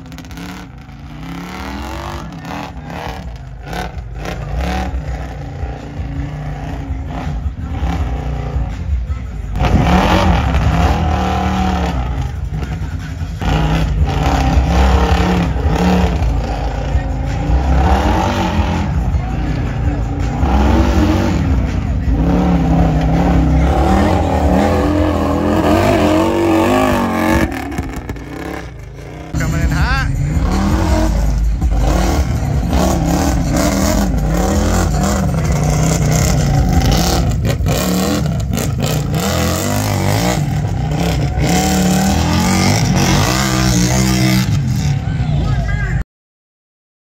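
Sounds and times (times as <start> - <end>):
atv engine revving hard: 13.4 - 19.0, 20.2 - 44.7.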